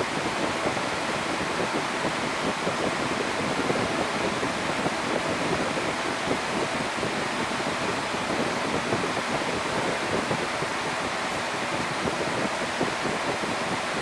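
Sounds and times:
steady rushing noise: 0.0s - 14.0s.

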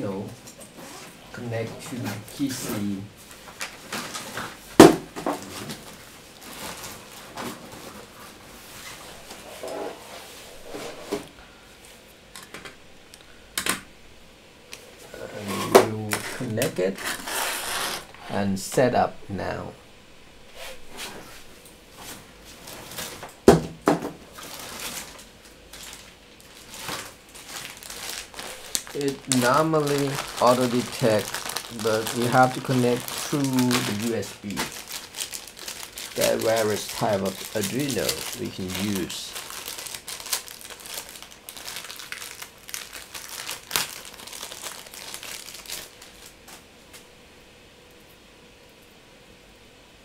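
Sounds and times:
rustling of things handled: 0.1s - 12.6s, 20.5s - 47.1s.

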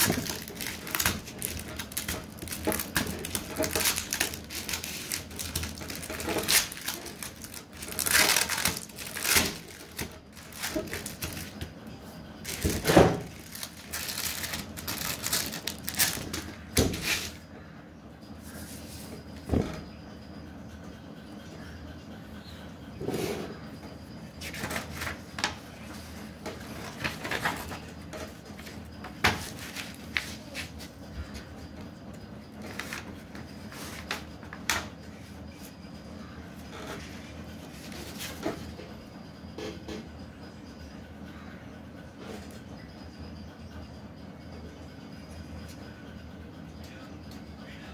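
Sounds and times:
paper and plastic rustling: 0.0s - 11.7s, 12.4s - 17.4s, 24.4s - 31.0s, 32.6s - 34.7s
faint steady hum: 0.0s - 47.9s.

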